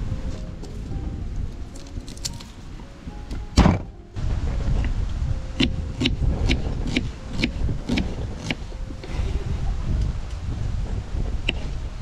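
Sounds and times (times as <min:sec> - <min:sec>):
low rumble: 0:00.0 - 0:12.0
loud thump: 0:03.4 - 0:03.9.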